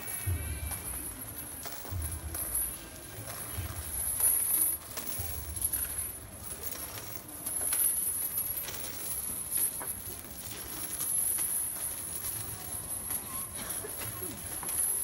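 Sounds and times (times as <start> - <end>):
footsteps and shuffling: 0.0 - 15.0.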